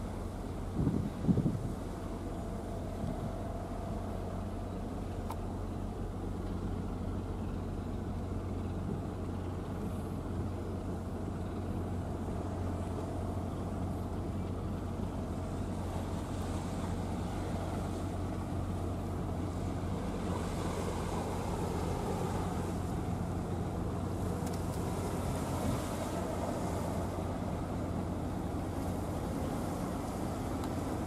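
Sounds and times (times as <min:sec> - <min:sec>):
ship engine humming: 0:00.0 - 0:31.0.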